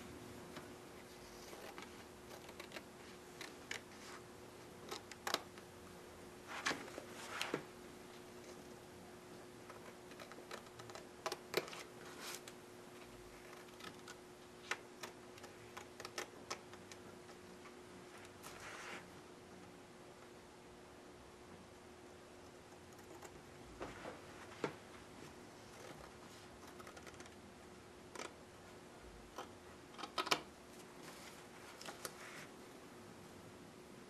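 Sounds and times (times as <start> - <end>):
faint steady hum: 0.0 - 34.0
scissors snipping: 1.5 - 3.9, 9.7 - 12.6, 13.5 - 17.0.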